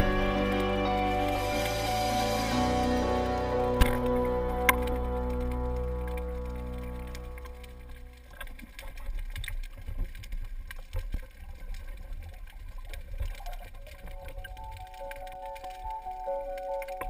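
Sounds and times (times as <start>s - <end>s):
background music: 0.0s - 8.2s
underwater rumble of moving water: 0.0s - 17.0s
crackling clicks: 3.3s - 17.0s.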